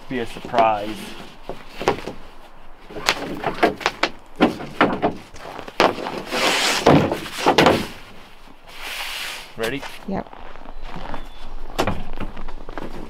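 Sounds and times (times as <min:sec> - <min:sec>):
strap scraping across boards: 0:00.1 - 0:10.1
strap knocking and clattering: 0:02.9 - 0:08.1.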